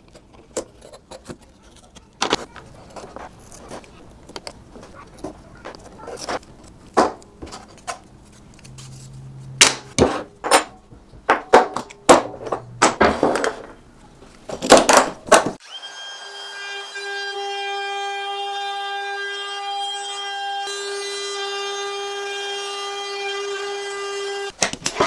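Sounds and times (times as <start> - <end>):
router whining: 15.6 - 24.5.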